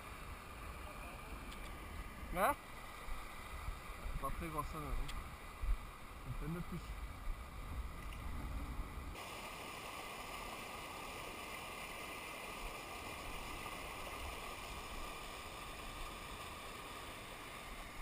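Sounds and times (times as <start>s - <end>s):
water rushing over rocks: 9.1s - 18.0s.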